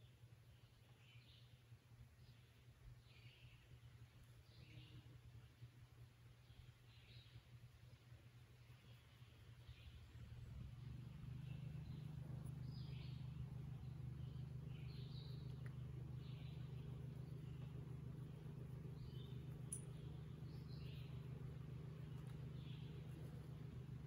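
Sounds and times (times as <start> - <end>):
faint bird chirps: 6.4 - 24.0
low hum: 9.7 - 24.0
faint click: 15.5 - 15.8.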